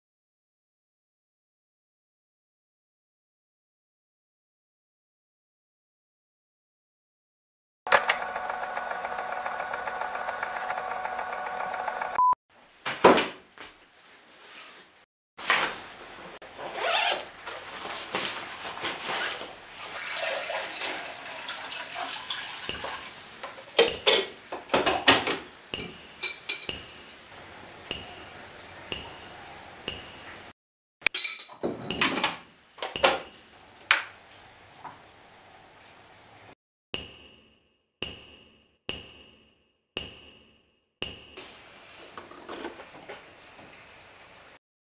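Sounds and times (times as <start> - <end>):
coffee maker and cups clinking: 19.4 - 27.2.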